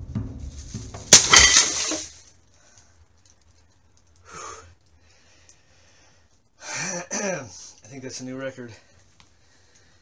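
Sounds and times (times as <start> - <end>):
objects crashing on floor: 0.0 - 2.3
short breath: 4.2 - 6.3.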